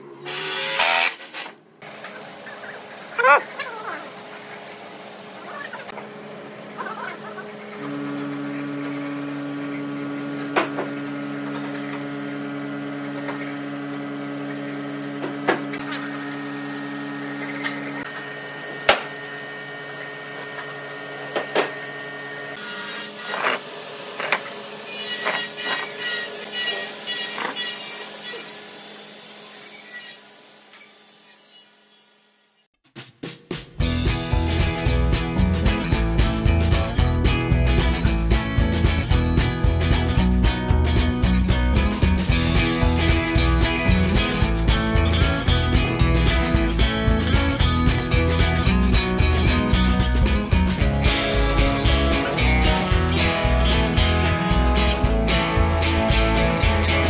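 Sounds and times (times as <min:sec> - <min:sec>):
steady motor hum: 0:01.8 - 0:32.6.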